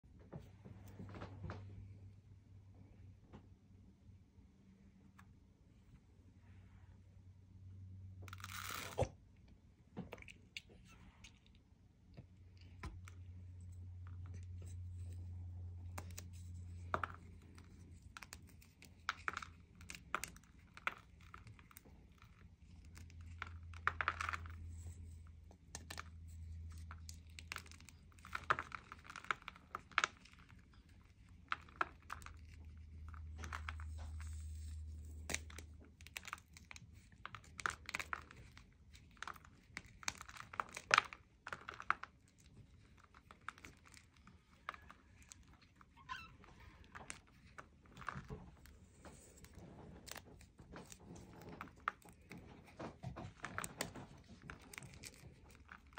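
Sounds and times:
chalk block cracking and crumbling: 0:12.4 - 0:55.9.

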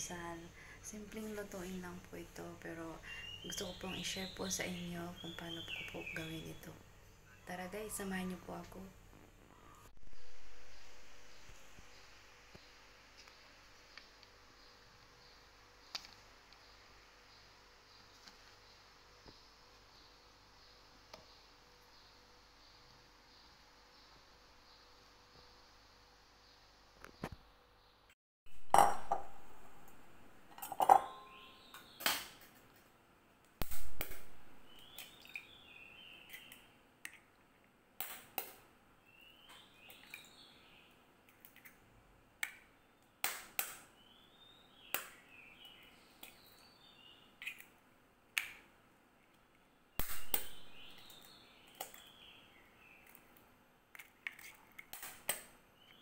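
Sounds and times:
eggs knocking on glass bowl: 0:28.7 - 0:29.4.

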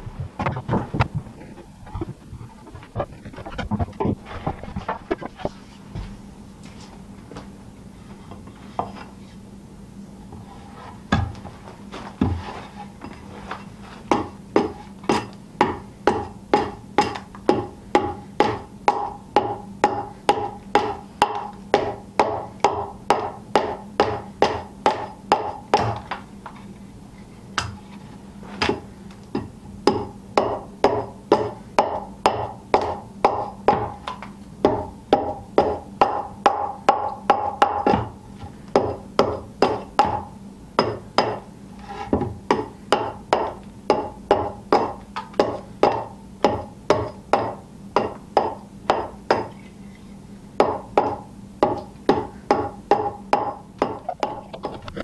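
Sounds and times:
hand axe striking wooden board: 0:14.1 - 0:26.2, 0:29.4 - 0:38.2.

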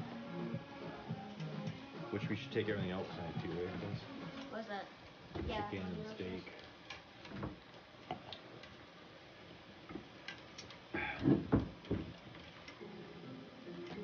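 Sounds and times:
knocks on dishes: 0:11.2 - 0:12.1.

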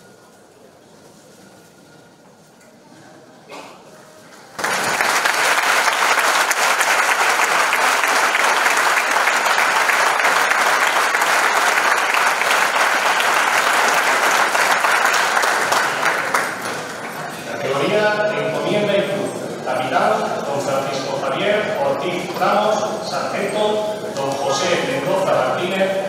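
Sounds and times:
audience applauding: 0:04.6 - 0:17.5.

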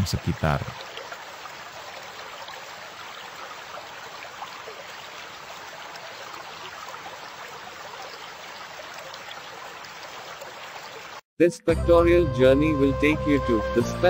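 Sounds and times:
water rushing over stones: 0:00.0 - 0:11.2.

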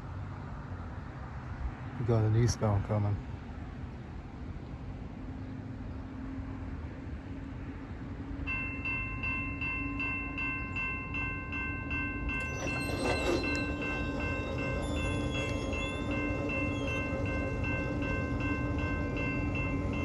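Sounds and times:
electronic crossing bell ringing: 0:08.5 - 0:20.0.

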